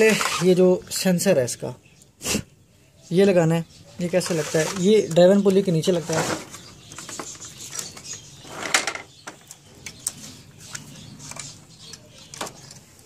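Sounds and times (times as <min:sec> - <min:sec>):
light plastic clicks and rustles: 0:04.2 - 0:13.0
plastic clack: 0:06.3 - 0:12.9.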